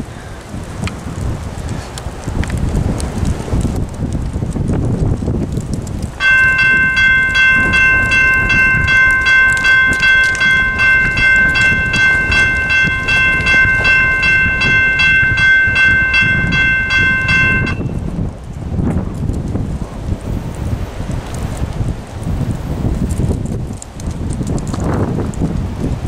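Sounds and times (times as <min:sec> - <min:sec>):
railroad crossing bells ringing: 0:06.2 - 0:18.0.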